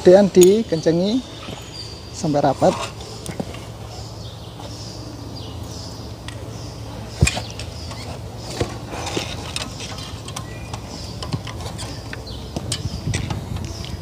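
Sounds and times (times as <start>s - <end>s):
steady low hum: 0.0s - 14.0s
metal clicks: 7.2s - 14.0s.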